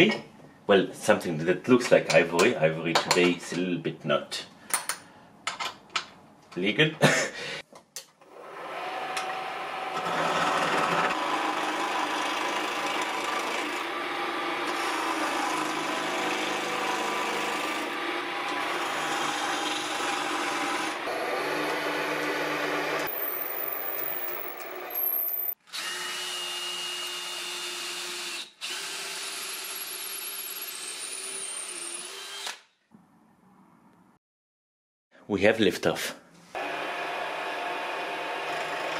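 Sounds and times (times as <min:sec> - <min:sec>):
drilling plastic: 0:08.2 - 0:32.7, 0:36.6 - 0:38.9
lathe motor hum: 0:36.6 - 0:38.9.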